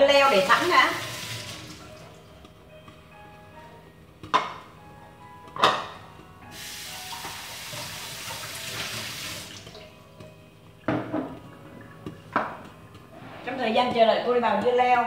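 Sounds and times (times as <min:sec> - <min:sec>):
water tap running into sink: 0:00.0 - 0:02.2, 0:06.5 - 0:10.0.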